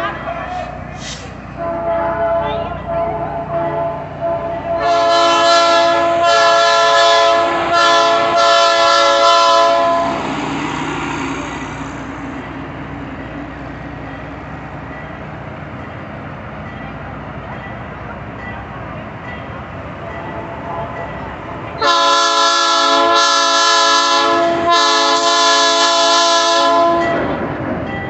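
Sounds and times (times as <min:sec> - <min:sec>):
locomotive air horn blasts: 0:00.0 - 0:10.2, 0:21.8 - 0:27.3
train coaches rumbling past: 0:00.0 - 0:28.0.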